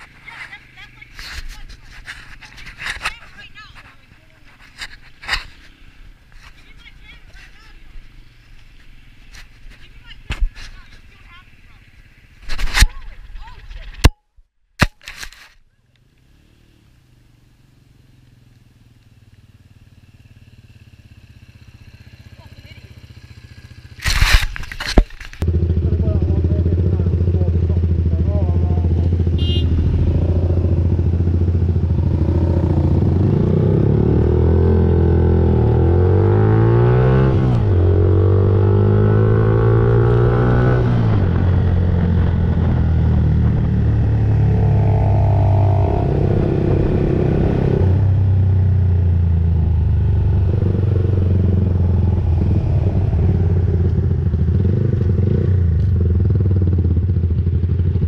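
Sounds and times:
motorcycle engine accelerating: 16.1 - 58.0.

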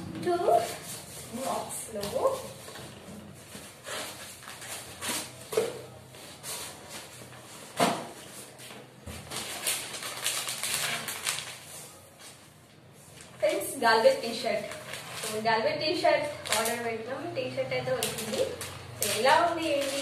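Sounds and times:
cardboard and plastic rustling: 0.5 - 12.5, 14.3 - 15.5, 16.3 - 16.9, 18.0 - 20.0.

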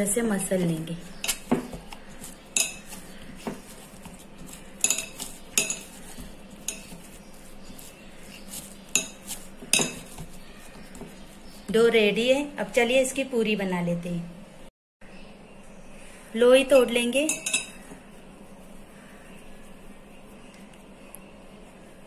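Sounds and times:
hands kneading dough: 0.0 - 12.4.

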